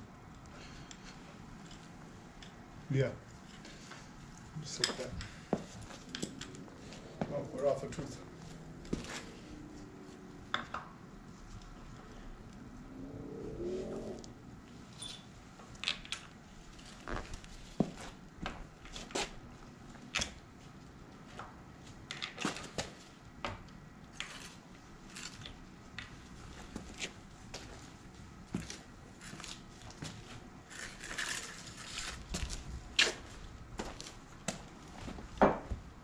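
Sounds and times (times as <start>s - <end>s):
short low rising sound: 12.6s - 14.6s.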